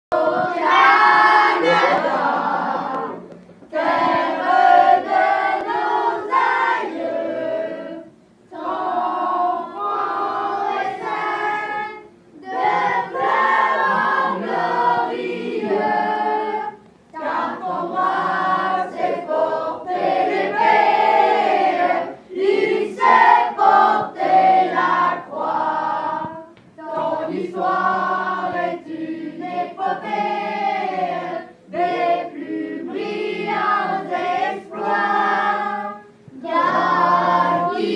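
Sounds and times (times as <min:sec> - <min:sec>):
children singing in unison: 0:00.1 - 0:37.9.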